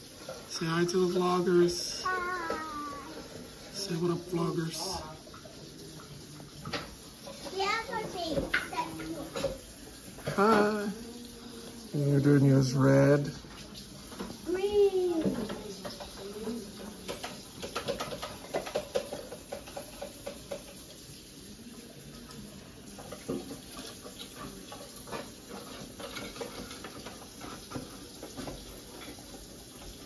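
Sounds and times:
faint children's voices: 0:02.0 - 0:03.7, 0:07.2 - 0:09.7.

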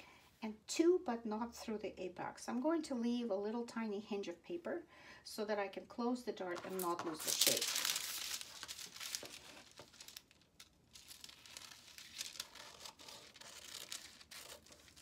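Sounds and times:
paper rustling: 0:06.5 - 0:15.0
scissors snipping paper: 0:11.0 - 0:15.0.

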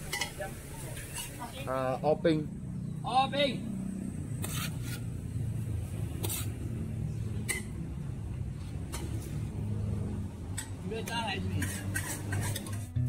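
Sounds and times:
utensils clinking on pot and plate: 0:00.0 - 0:00.4, 0:01.0 - 0:01.4, 0:07.4 - 0:07.8, 0:11.5 - 0:12.9.

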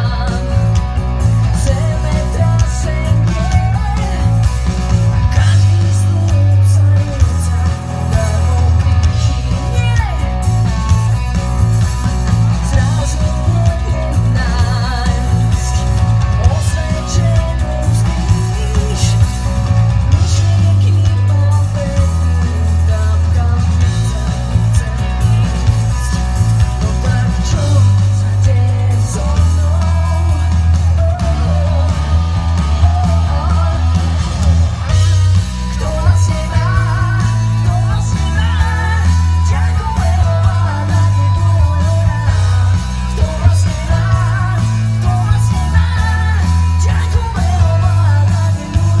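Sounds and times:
woman singing: 0:00.0 - 0:00.8, 0:01.5 - 0:04.5, 0:05.3 - 0:10.4, 0:12.6 - 0:19.5, 0:20.2 - 0:25.8, 0:43.1 - 0:49.0
electric guitar: 0:00.0 - 0:49.0
pulsing bass line: 0:00.0 - 0:49.0.

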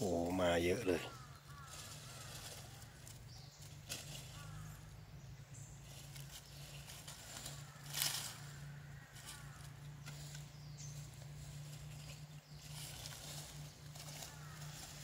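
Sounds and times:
dry leaf litter rustling: 0:00.0 - 0:15.0
faint chirping calls: 0:00.0 - 0:15.0.

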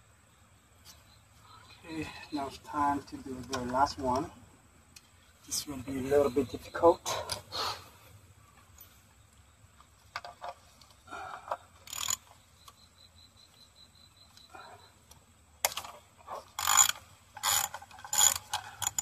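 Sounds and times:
plastic and metal clicks and rattles: 0:16.6 - 0:19.0.

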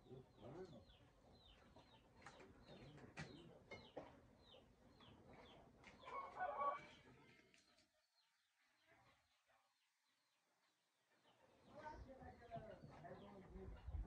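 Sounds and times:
chicken clucking: 0:00.0 - 0:07.2
small birds chirping: 0:00.0 - 0:14.0.

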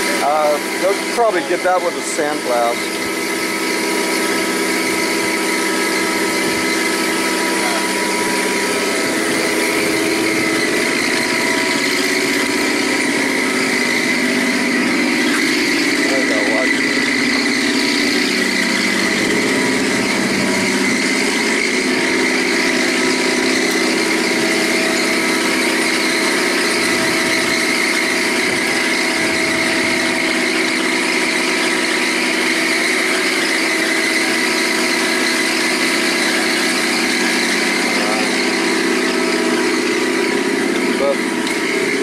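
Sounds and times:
boat lift engine running: 0:00.0 - 0:42.0
high whine: 0:00.0 - 0:42.0.

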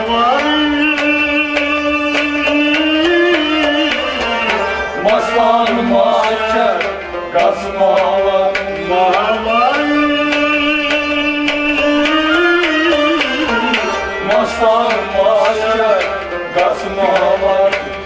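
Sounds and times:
bowed fiddle: 0:00.0 - 0:18.0
harmonium: 0:00.0 - 0:18.0
plucked string melody: 0:00.0 - 0:18.0.

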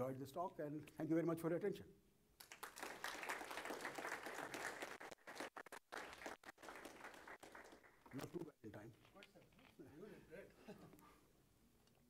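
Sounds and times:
audience applauding: 0:02.4 - 0:08.2.

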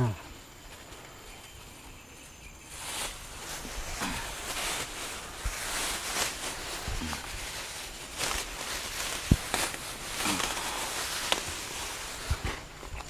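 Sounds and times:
plastic bags rustling: 0:02.4 - 0:13.0.

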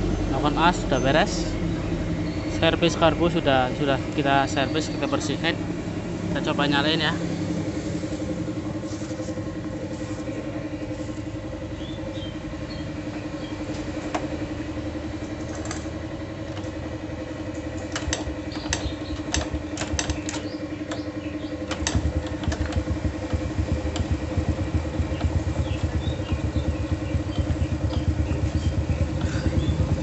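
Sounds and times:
motorcycle engine idling: 0:00.0 - 0:30.0
sharp ticks: 0:17.6 - 0:30.0.

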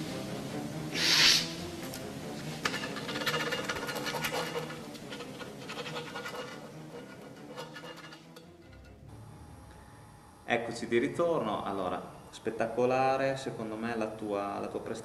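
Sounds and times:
short loud hiss: 0:00.9 - 0:01.7
scratchy crackling noise: 0:02.5 - 0:08.8.

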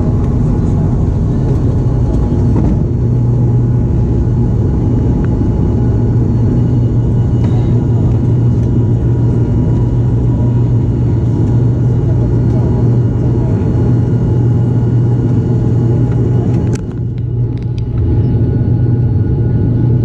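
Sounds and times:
propeller engine drone in cabin: 0:00.0 - 0:20.0.

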